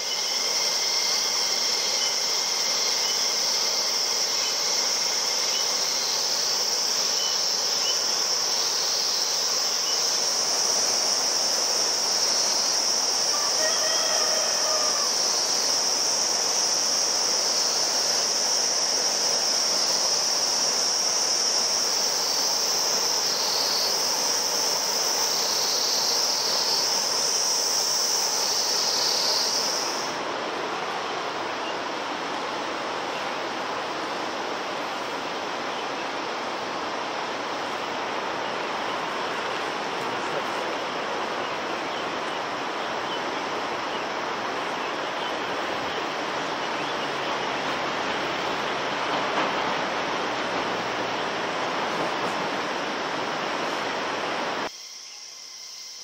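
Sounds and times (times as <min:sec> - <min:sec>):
insects chorus shrill ringing: 0:00.0 - 0:30.2, 0:54.7 - 0:56.0.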